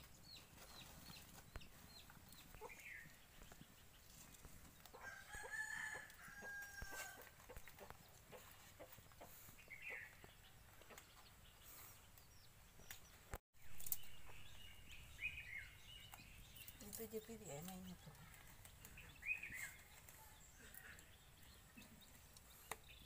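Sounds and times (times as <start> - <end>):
rooster crowing: 5.0 - 7.3.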